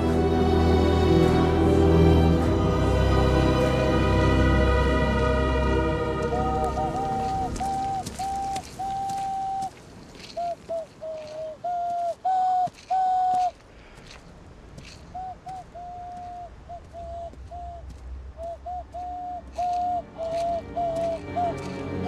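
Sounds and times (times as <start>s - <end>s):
hand whistle hooting: 6.2s - 9.7s.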